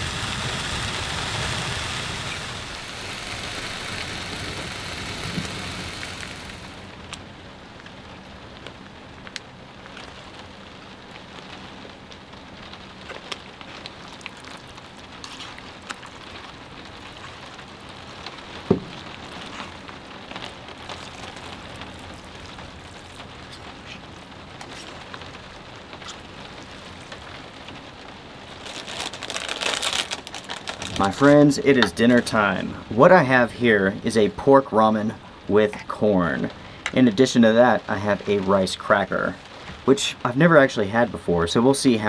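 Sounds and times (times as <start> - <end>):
heavy rain on a camper shell: 0.0 - 42.0
thump: 18.7 - 18.9.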